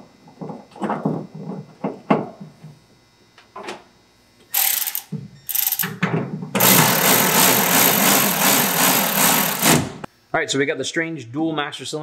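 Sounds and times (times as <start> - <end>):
cordless ratchet running: 4.6 - 6.0, 6.6 - 10.1.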